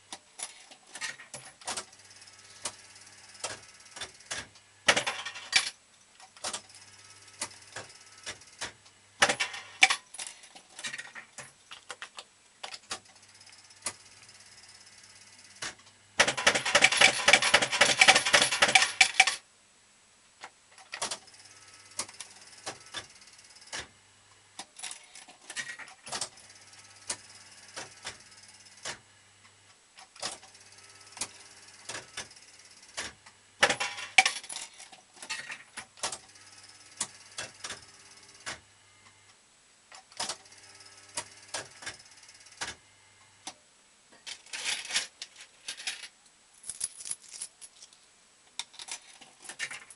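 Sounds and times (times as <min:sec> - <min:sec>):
rapid metallic clicks clatter: 0:15.6 - 0:19.4.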